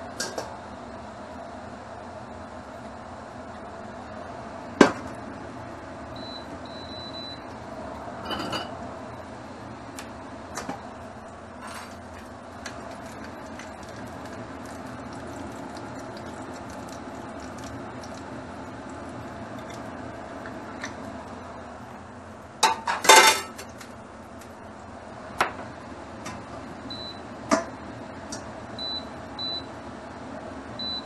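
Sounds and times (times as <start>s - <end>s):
fan humming: 0.0s - 31.0s
cookware knocks and clinks: 8.2s - 8.7s
metal cookware clanking: 22.6s - 23.6s.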